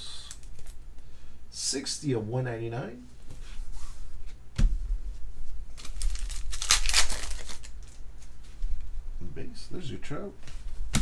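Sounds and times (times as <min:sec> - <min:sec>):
foil wrapper crinkling and tearing: 0:05.8 - 0:08.0.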